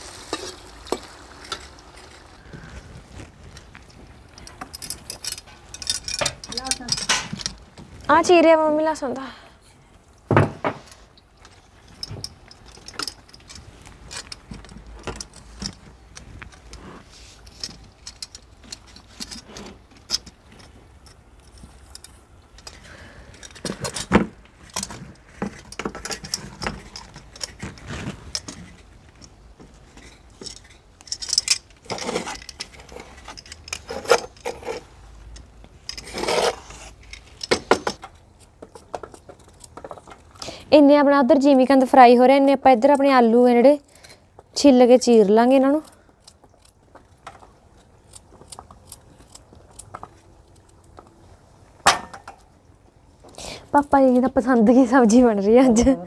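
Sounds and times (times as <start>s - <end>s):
metal utensils clinking and scraping: 0.0s - 2.6s, 3.5s - 7.6s, 10.8s - 40.6s.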